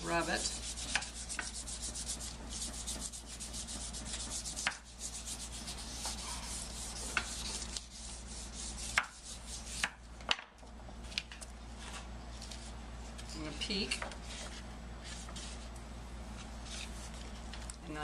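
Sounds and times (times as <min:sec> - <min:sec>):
wooden spoon rubbing on paper: 0:00.0 - 0:09.9.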